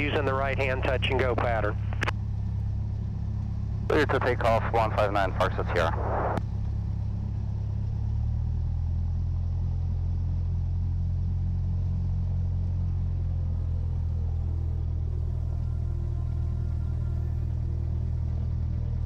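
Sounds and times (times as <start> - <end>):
propeller plane engine droning: 0.0 - 19.0.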